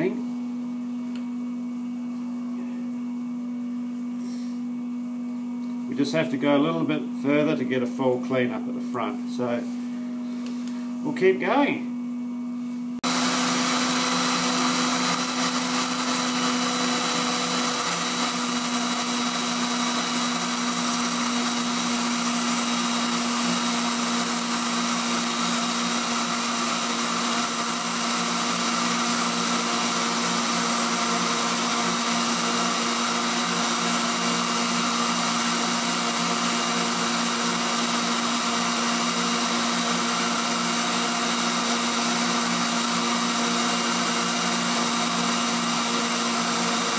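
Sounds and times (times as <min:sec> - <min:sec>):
grinder motor whine: 0:13.0 - 0:46.9.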